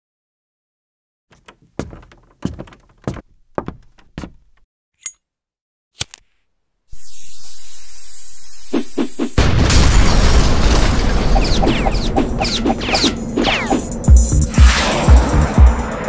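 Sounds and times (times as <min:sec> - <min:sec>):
heavy knocks: 0:01.3 - 0:04.5.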